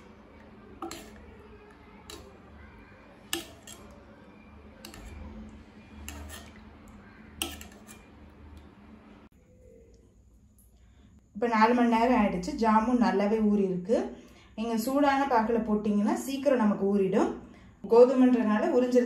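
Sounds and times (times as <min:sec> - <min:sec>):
metal spoon tapping a pot: 0:00.8 - 0:01.4, 0:02.0 - 0:02.4, 0:03.2 - 0:04.0, 0:04.8 - 0:05.2, 0:06.0 - 0:06.7, 0:07.4 - 0:08.2.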